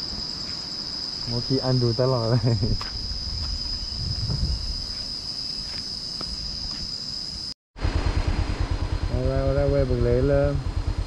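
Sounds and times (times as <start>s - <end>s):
insects droning: 0.0s - 11.0s
low rumble: 7.8s - 11.0s
motorcycle engine idling: 7.8s - 11.0s.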